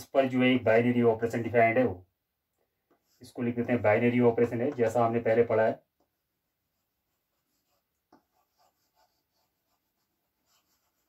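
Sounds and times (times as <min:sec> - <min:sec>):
chalk scratching on blackboard: 0:06.7 - 0:11.0
chalk tap: 0:07.4 - 0:11.0.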